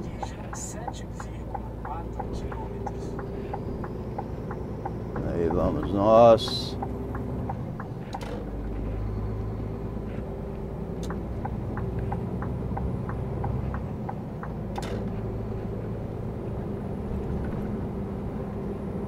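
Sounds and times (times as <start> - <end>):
light ticks: 0.0 - 8.4, 11.0 - 15.0
sharp clicks: 0.0 - 8.8, 11.0 - 15.2
truck diesel engine hum: 0.0 - 19.0.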